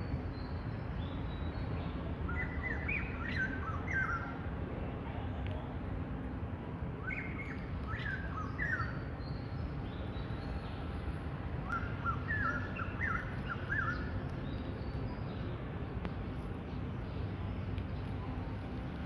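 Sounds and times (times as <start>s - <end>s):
small birds chirping: 7.0s - 19.0s.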